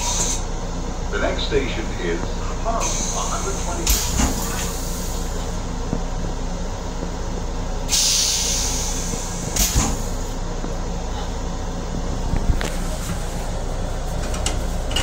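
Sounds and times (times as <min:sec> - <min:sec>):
train rumble: 0:00.0 - 0:15.0
hissing air burst: 0:07.9 - 0:10.3.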